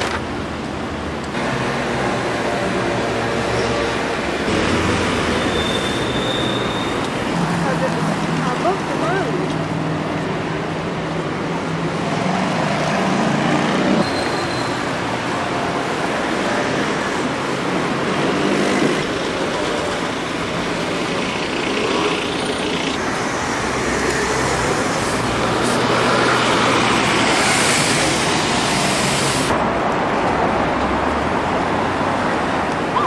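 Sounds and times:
city traffic noise: 0.0s - 33.0s
loud hiss: 27.0s - 29.6s.

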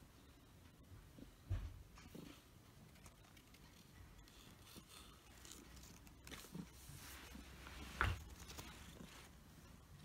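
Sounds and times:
fabric rustling on carpet: 5.6s - 9.9s.

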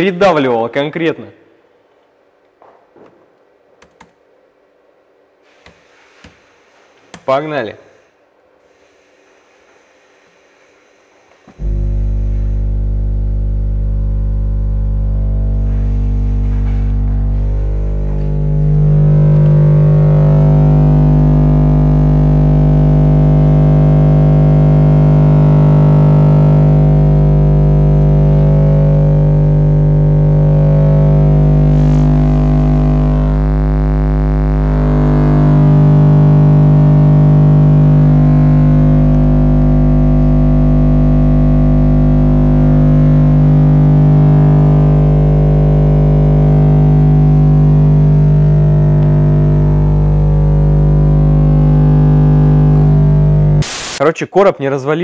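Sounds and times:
distorted subwoofer test tone: 11.4s - 54.1s.

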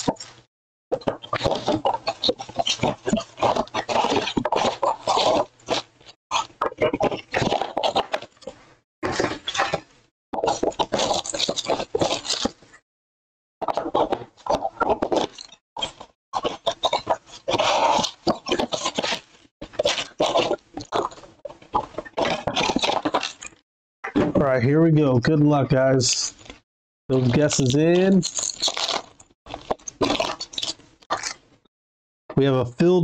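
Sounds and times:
foil card packs rustling: 27.1s - 31.3s.

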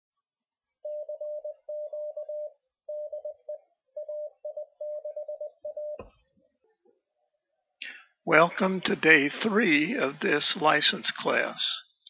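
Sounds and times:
morse code tone: 0.8s - 6.1s.

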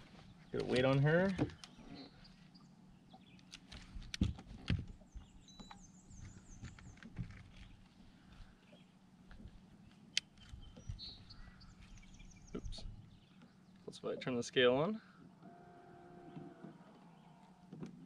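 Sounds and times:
knocks and clicks on boat deck: 3.7s - 7.8s.

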